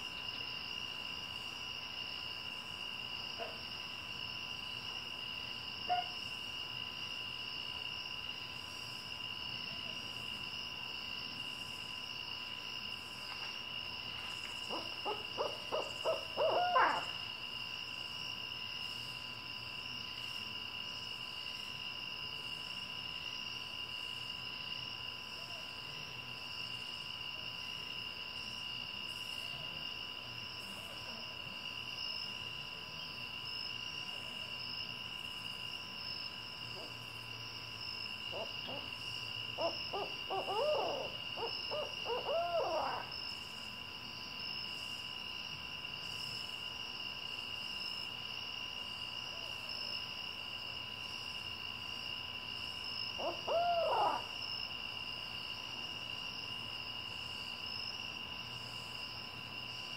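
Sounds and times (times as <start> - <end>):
night insects chorus: 0.0 - 59.9
owl hoots and cackling calls: 5.9 - 6.2, 14.7 - 17.3, 38.3 - 43.2, 53.1 - 54.4.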